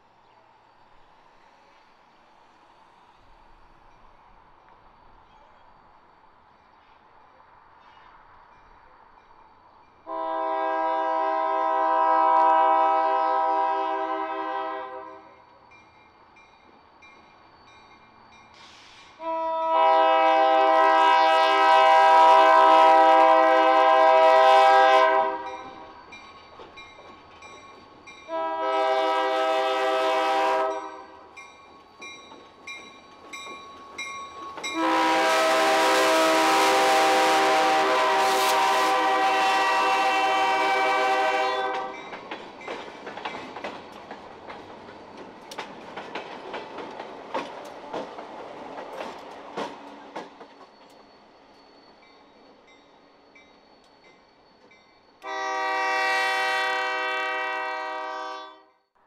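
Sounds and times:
locomotive engine and rail noise: 0.0s - 59.0s
locomotive air horn blasts: 10.1s - 15.3s, 19.2s - 25.8s, 28.3s - 31.2s, 34.8s - 42.0s, 55.2s - 58.8s.

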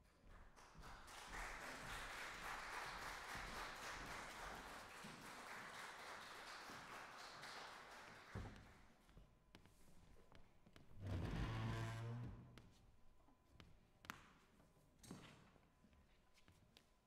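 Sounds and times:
faint audience applause: 0.0s - 9.0s.

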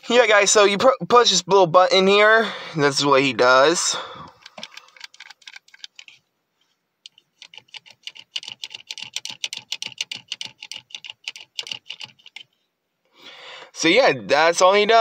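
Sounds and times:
plastic toy mechanism clicking: 4.3s - 6.2s, 7.0s - 12.5s.

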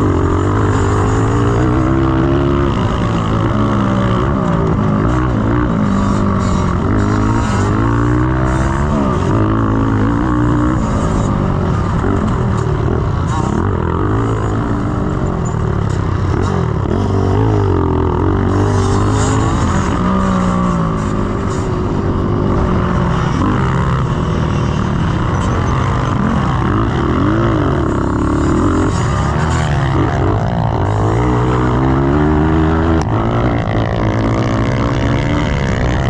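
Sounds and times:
motorcycle engine revving hard: 0.0s - 36.0s.

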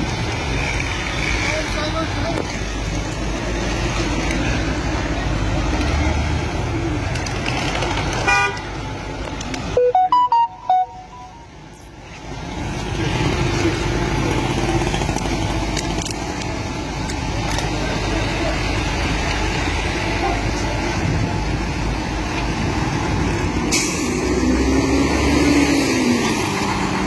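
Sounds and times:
passing cars and motorcycles: 0.0s - 27.0s
car horn toot: 8.3s - 8.6s, 9.8s - 11.5s
beeping tones changing pitch: 9.8s - 11.5s.

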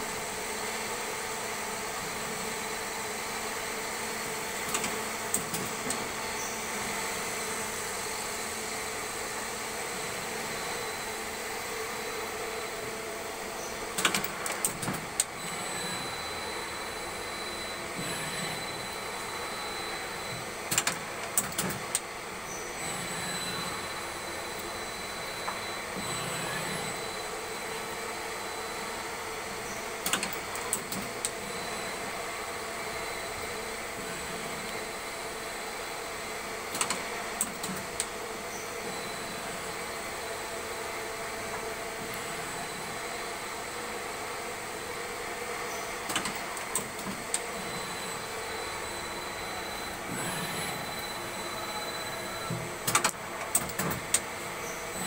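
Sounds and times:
machine hum: 0.0s - 55.0s
sharp machine clicks and knocks: 13.9s - 15.3s, 20.7s - 22.0s, 30.0s - 31.4s, 36.7s - 38.1s, 46.1s - 47.4s, 52.8s - 54.3s
motor whines: 47.2s - 52.6s.

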